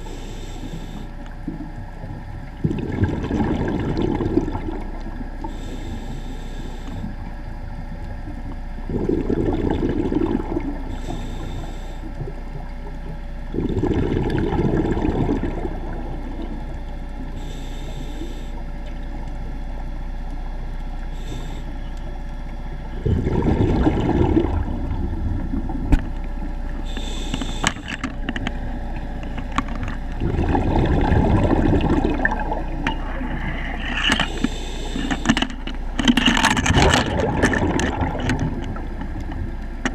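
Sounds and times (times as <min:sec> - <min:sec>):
regulator inhale hiss: 0:00.0 - 0:01.3, 0:05.4 - 0:07.3, 0:10.8 - 0:12.3, 0:17.2 - 0:18.8, 0:21.1 - 0:22.0, 0:26.7 - 0:28.2, 0:33.0 - 0:35.9
steady low hum: 0:00.0 - 0:39.9
exhaust bubbles rumbling: 0:01.0 - 0:06.1, 0:07.0 - 0:39.9.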